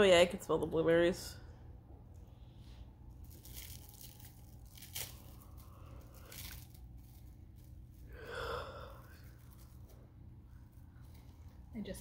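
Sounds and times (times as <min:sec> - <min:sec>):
faint handling noises: 0:09.0 - 0:12.0.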